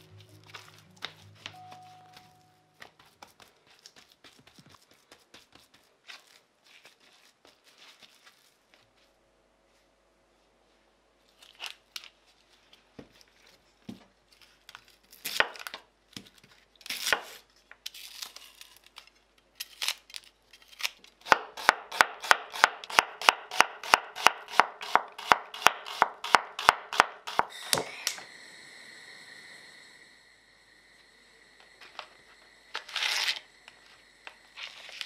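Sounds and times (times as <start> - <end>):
onion skins rustling and tearing: 2.8 - 9.1, 11.3 - 21.3, 34.5 - 35.0
knife chopping onion: 21.2 - 27.9.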